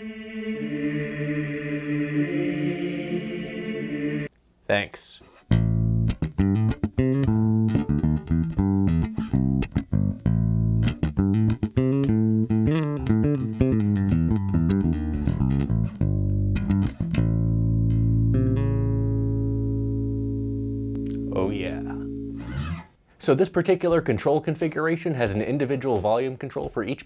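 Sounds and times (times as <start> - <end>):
electric bass plucked: 5.5 - 23.0.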